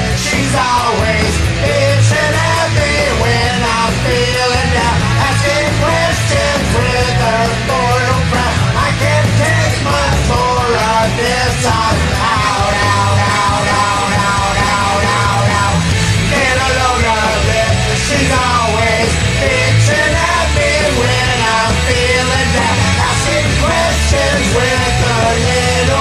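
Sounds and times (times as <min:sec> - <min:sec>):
man singing and yelling: 0:00.0 - 0:26.0
punk rock backing track: 0:00.0 - 0:26.0.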